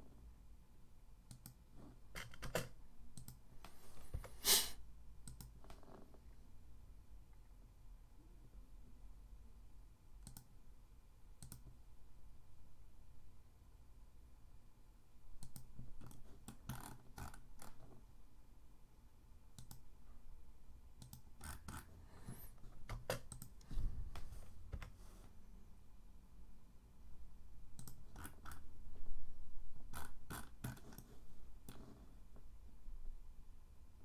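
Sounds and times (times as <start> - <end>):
mouse and keyboard clicks: 2.2 - 3.4, 5.2 - 5.8, 10.2 - 10.5, 11.4 - 11.8, 15.4 - 17.7, 22.8 - 23.6, 27.8 - 28.6.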